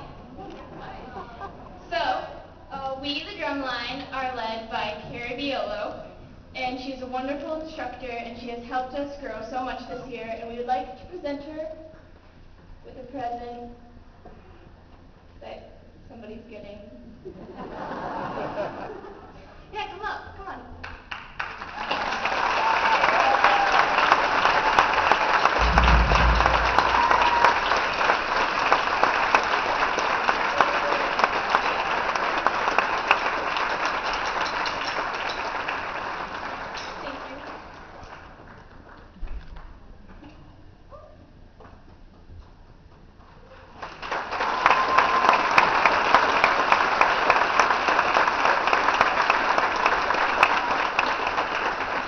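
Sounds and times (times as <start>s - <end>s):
audience applauding: 21.1s - 39.0s, 43.7s - 52.0s
low rumble: 25.6s - 28.0s.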